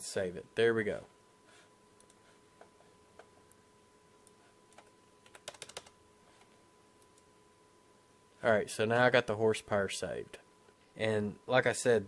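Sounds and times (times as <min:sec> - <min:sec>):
keyboard and mouse clicks: 0:04.2 - 0:06.0.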